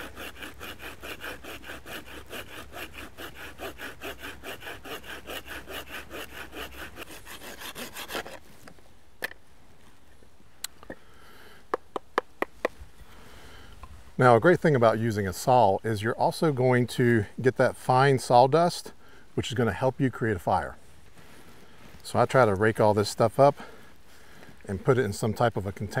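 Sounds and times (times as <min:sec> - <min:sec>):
hand saw cutting wood: 0:00.0 - 0:08.4.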